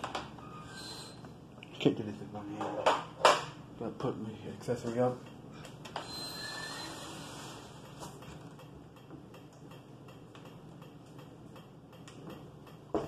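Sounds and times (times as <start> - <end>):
ceiling fan air rush: 0.0 - 13.0
faint regular ticking: 4.7 - 6.0, 7.7 - 13.0.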